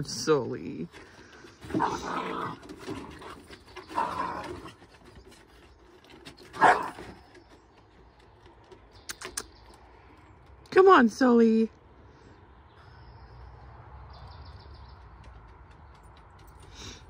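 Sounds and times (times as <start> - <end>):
small dogs growling and barking: 1.6 - 5.1, 6.4 - 7.3.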